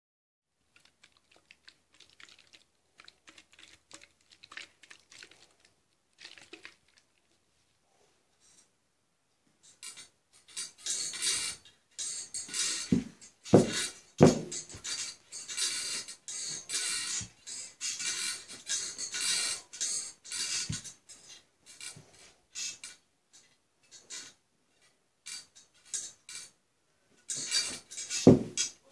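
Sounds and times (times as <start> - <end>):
baby bouncer rattling and rustling: 9.6 - 24.4, 25.2 - 26.6, 27.2 - 28.9.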